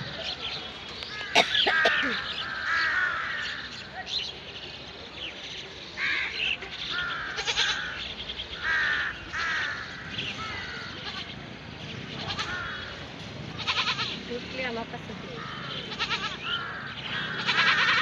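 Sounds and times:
crows cawing: 1.0 - 3.9, 6.0 - 11.4, 12.2 - 14.2, 15.3 - 18.0.

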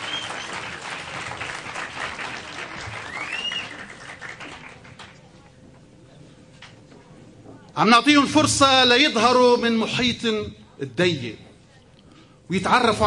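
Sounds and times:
rising and falling whistle: 0.0 - 0.6, 3.0 - 3.8
audience applauding: 0.0 - 5.2.

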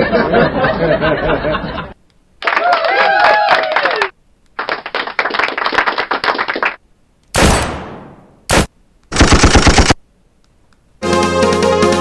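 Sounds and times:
gunfire sound effects: 7.4 - 10.0
machine-gun burst: 7.4 - 10.0.

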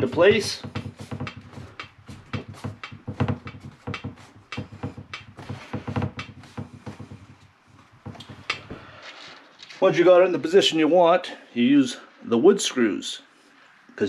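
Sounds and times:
hands knocking on wooden cabinet: 0.0 - 8.8.

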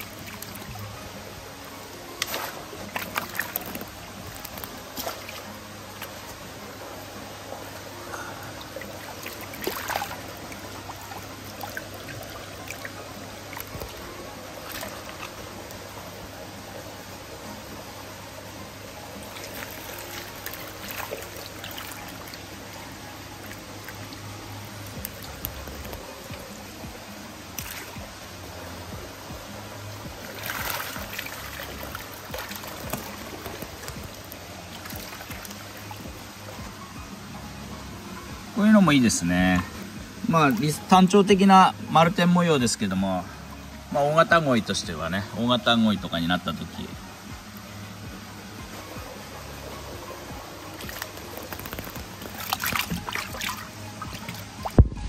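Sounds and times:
low steady hum: 0.0 - 55.0
water running and trickling: 0.0 - 55.0
sharp water splashes: 2.1 - 6.1, 8.8 - 15.4, 19.2 - 22.4, 27.5 - 28.1, 30.2 - 36.0, 50.7 - 55.0.

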